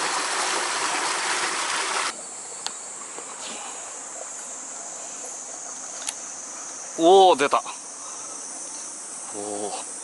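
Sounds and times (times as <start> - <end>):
rushing stream water: 0.0 - 2.2
insects chirping: 0.0 - 10.0.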